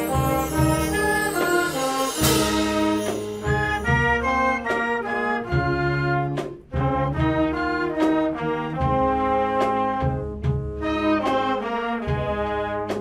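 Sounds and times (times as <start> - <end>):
cymbal crash: 0.0 - 4.9
brass band playing: 0.0 - 13.0.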